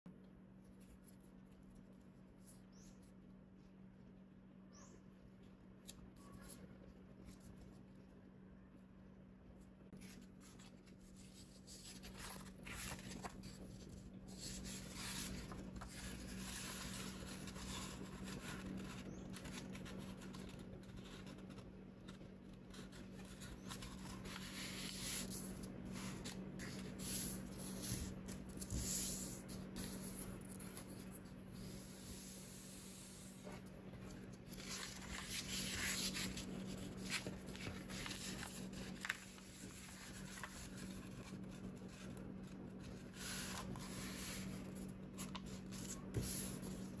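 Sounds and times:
faint low hum: 0:00.1 - 0:47.0
paper rustling and creasing: 0:09.9 - 0:47.0.

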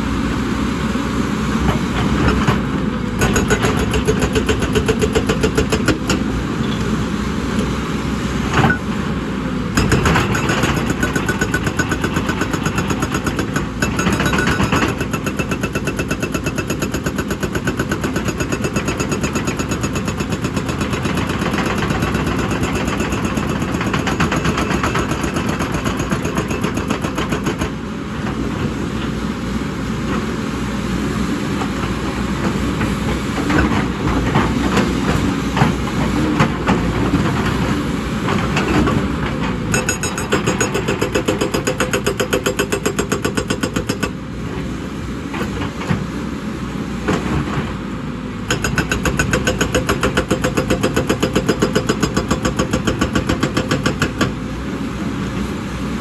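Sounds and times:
hydraulic breaker hammering rock: 0:03.2 - 0:06.4, 0:09.7 - 0:27.8, 0:38.3 - 0:44.2, 0:48.5 - 0:54.4.

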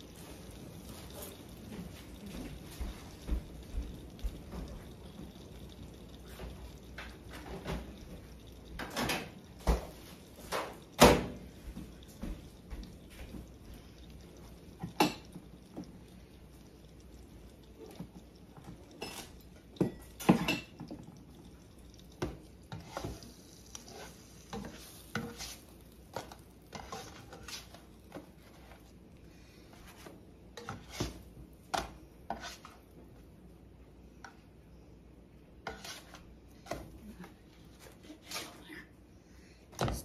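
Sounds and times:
utensils scraping a skillet: 0:22.7 - 0:28.9, 0:29.7 - 0:32.9, 0:35.6 - 0:37.0, 0:37.7 - 0:38.7.

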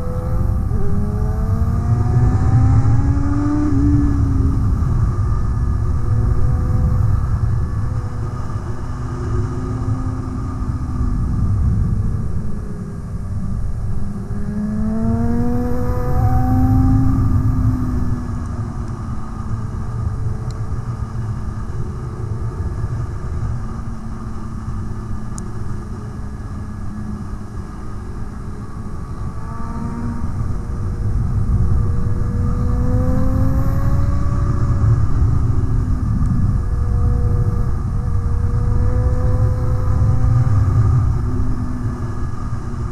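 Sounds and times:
wind rush: 0:00.0 - 0:24.9, 0:28.5 - 0:42.9
motorcycle engine revving: 0:14.0 - 0:19.9, 0:29.2 - 0:41.5.

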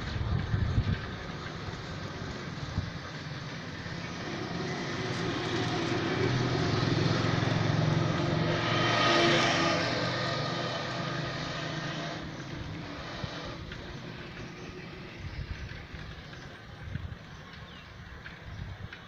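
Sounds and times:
wind gusts on microphone: 0:00.0 - 0:03.0, 0:12.1 - 0:19.0
road traffic: 0:00.0 - 0:19.0
vehicle engine drone: 0:00.0 - 0:19.0.

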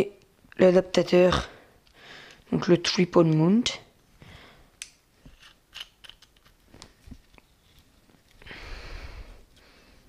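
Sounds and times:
plastic parts clicking: 0:04.8 - 0:06.5.

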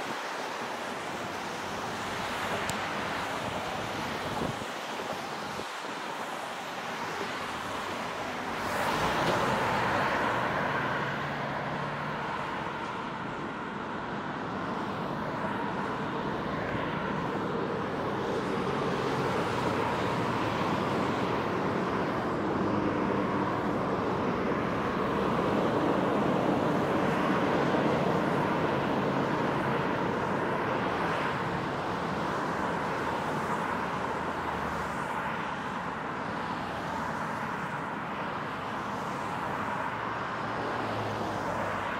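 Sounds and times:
cars passing on highway: 0:00.0 - 0:41.9.

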